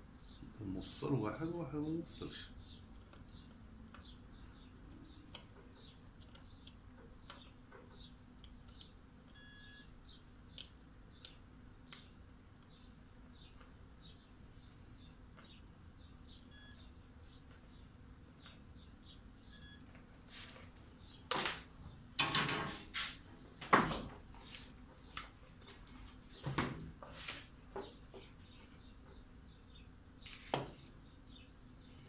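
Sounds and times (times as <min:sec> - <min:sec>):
clicks and rustles of handling wires: 0:02.8 - 0:04.2, 0:05.0 - 0:09.4, 0:19.8 - 0:29.3
faint bird chirps: 0:12.7 - 0:19.9.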